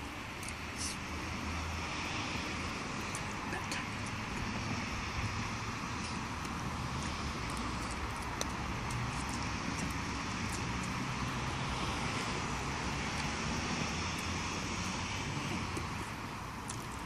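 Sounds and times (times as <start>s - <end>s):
faint light ticks: 6.0s - 11.0s.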